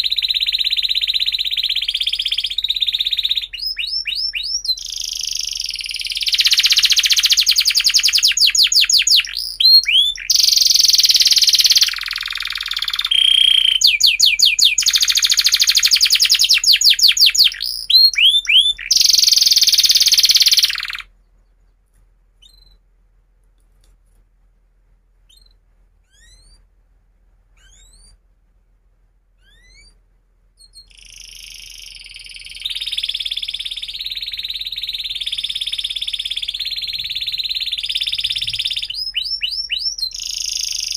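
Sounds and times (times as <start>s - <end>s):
canary singing trills: 0.0s - 21.7s, 22.4s - 22.8s, 25.3s - 26.7s, 27.5s - 28.2s, 29.4s - 30.0s, 30.6s - 40.9s
faint bird chirps: 0.0s - 22.9s, 25.2s - 26.7s, 27.5s - 28.3s, 29.4s - 40.9s.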